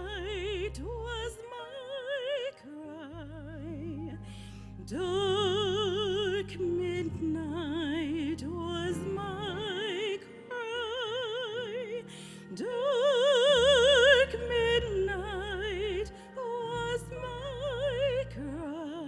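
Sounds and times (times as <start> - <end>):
woman singing with vibrato: 4.9 - 19.0.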